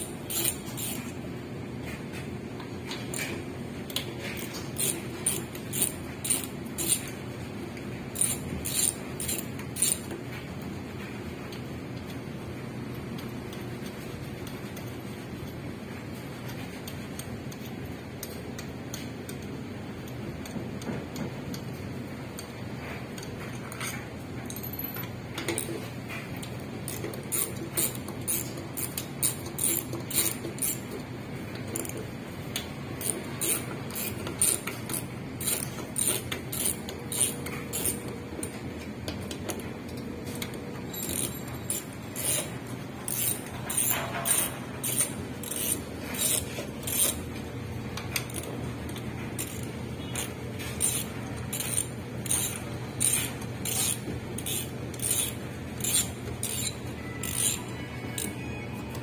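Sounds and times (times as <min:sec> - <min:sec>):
hand tools clicking on metal: 0:00.0 - 0:01.1, 0:02.9 - 0:07.2, 0:08.2 - 0:10.2, 0:23.2 - 0:47.4, 0:48.0 - 0:59.0.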